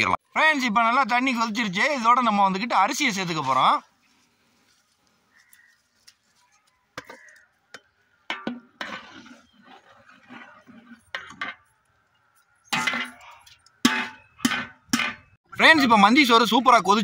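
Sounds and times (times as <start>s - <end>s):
metal clinking and scraping on pot: 7.0s - 15.4s
ladle stirring rice in boiling water: 8.3s - 11.8s.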